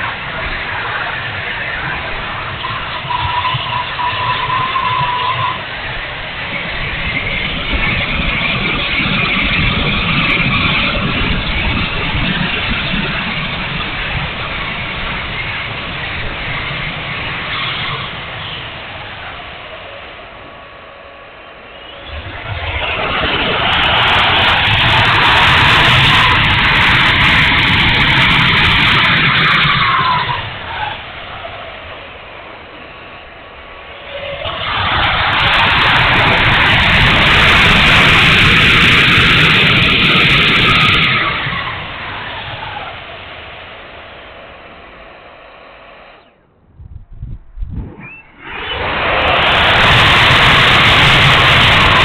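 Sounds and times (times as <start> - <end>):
wind rumble on microphone: 0.0 - 19.4, 46.5 - 52.0
rushing air: 0.0 - 52.0
ducted fan rushing: 33.5 - 52.0.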